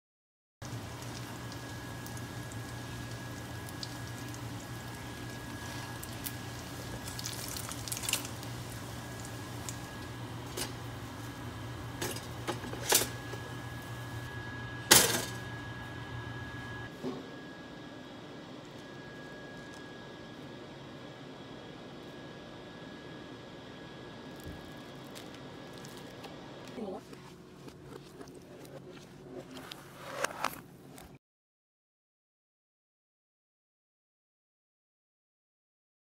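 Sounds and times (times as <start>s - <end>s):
egg and bacon sizzling: 0.6s - 14.3s
steady low hum: 0.6s - 31.1s.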